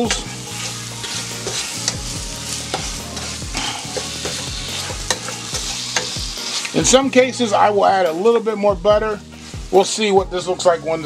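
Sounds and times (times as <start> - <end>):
spatula scraping and tapping pan: 0.0 - 6.8
apple slices sizzling in pan: 0.0 - 11.0.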